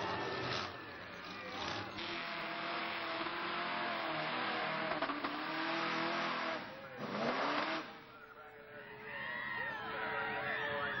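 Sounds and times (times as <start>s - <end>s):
truck engine revving hard: 1.5s - 8.0s.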